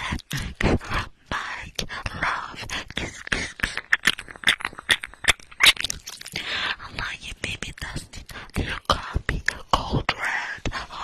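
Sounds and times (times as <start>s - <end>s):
breathy whisper-like noises: 0.0s - 11.0s
wet mouth clicks and smacks: 3.0s - 6.4s.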